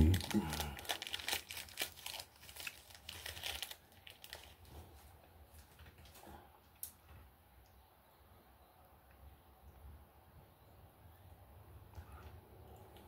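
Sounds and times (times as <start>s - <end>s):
food wrapper crinkling: 0.0s - 5.1s.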